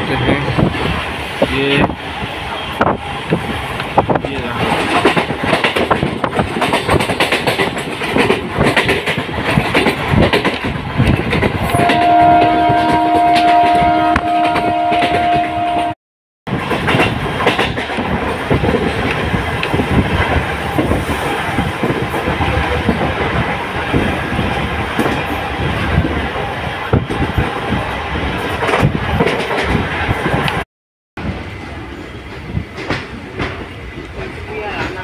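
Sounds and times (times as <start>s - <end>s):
train wheels rumbling on rails: 0.0s - 30.6s, 31.2s - 35.0s
train horn: 11.7s - 16.0s.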